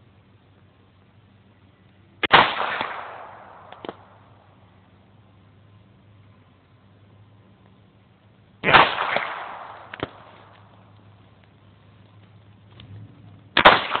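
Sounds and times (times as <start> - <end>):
pistol shot: 2.2 - 4.2, 8.6 - 10.6, 13.6 - 14.0.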